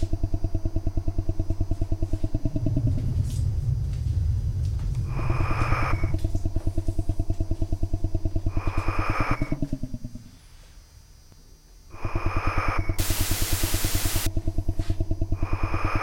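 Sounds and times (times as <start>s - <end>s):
pulsing synth bass drone: 0.0s - 10.4s, 12.1s - 16.0s
loud burst of hiss: 12.0s - 14.3s.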